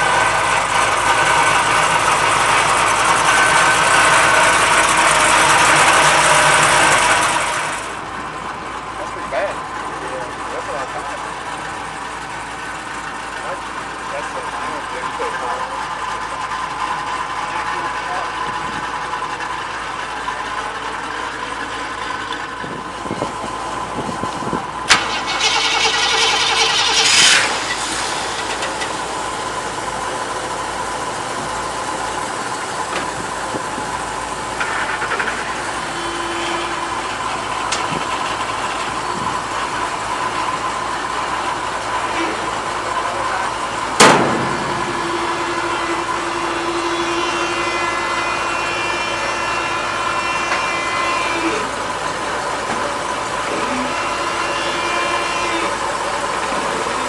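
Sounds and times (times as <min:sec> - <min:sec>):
car engine running: 0:00.0 - 0:57.0
sharp clunk: 0:44.0 - 0:45.0.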